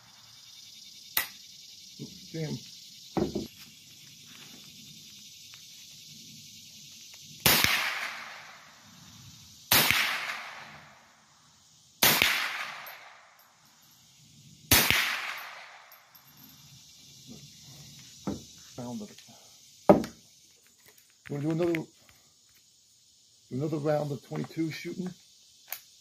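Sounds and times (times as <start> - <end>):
rifle shots echoing: 7.4 - 8.5, 9.7 - 10.8, 12.0 - 13.2, 14.7 - 15.8.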